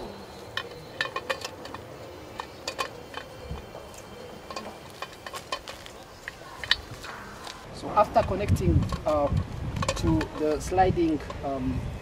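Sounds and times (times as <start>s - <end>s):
clicks and taps of steel parts: 0.5s - 1.8s, 2.4s - 7.6s, 8.4s - 11.4s.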